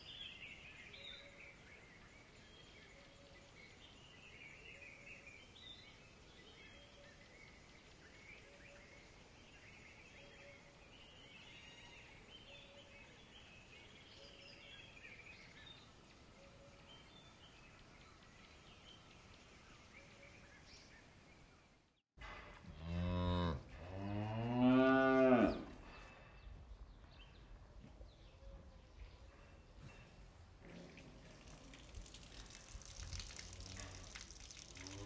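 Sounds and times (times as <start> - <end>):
cow mooing: 22.8 - 25.6.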